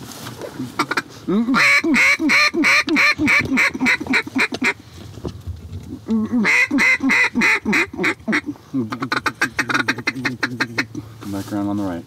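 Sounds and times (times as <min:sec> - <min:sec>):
duck call quacks: 0:00.8 - 0:04.8, 0:06.2 - 0:11.0.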